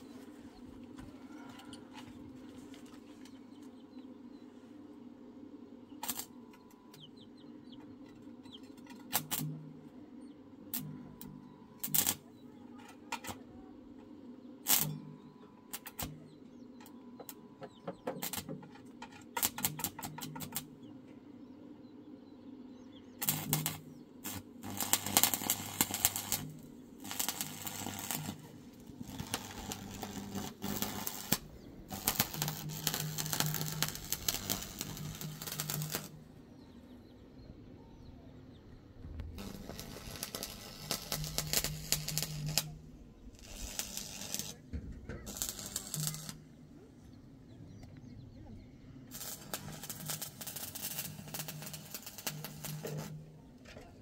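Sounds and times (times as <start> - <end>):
welding arc crackling: 6.0 - 6.3, 9.1 - 9.5, 11.8 - 12.2, 14.7 - 14.9, 15.7 - 16.2, 18.2 - 18.5, 19.4 - 20.7, 23.2 - 36.2, 39.2 - 46.4, 49.1 - 53.3.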